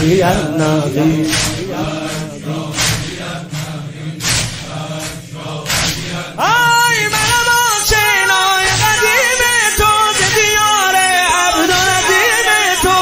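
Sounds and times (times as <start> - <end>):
man singing amplified solo: 0.0 - 2.4, 6.4 - 13.0
crowd chanting: 0.0 - 13.0
chest-beating strokes: 1.1 - 6.4.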